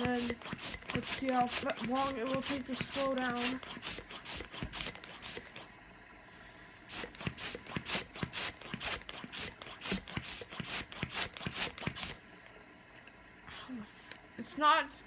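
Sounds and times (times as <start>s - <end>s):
hand pump puffing air: 0.0s - 5.7s, 6.9s - 12.2s.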